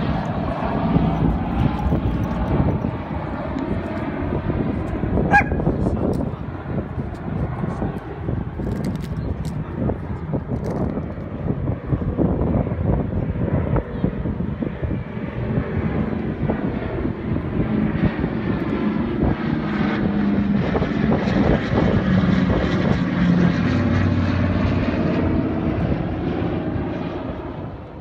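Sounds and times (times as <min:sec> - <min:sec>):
propeller aircraft engine drone: 0:00.0 - 0:28.0.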